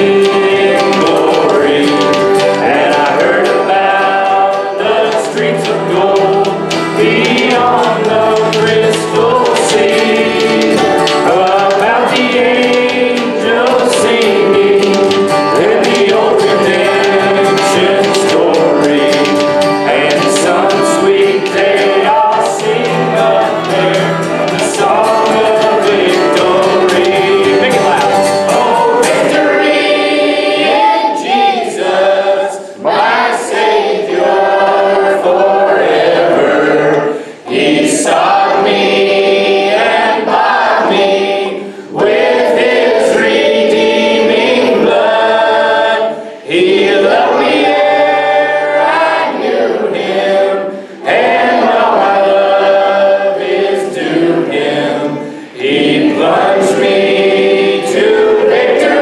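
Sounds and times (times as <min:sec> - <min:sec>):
congregation singing worship song: 0:00.0 - 0:59.0
worship band playing: 0:00.0 - 0:59.0.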